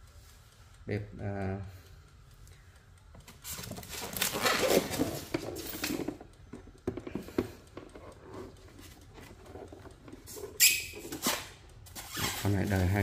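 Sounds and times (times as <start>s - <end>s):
plastic scraping against foam: 9.6s - 13.0s.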